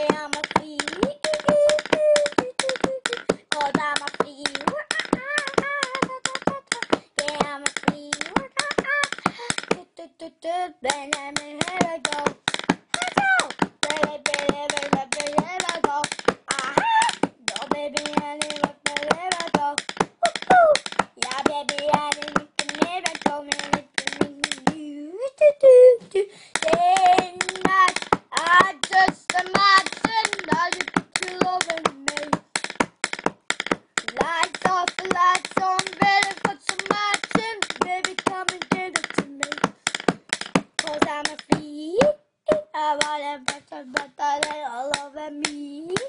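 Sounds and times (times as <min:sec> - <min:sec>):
pencil tapping like a drumstick: 0:00.0 - 0:24.9, 0:26.5 - 0:46.0
boy singing: 0:00.0 - 0:32.6, 0:34.0 - 0:46.0
child humming: 0:01.1 - 0:03.5, 0:20.2 - 0:20.8.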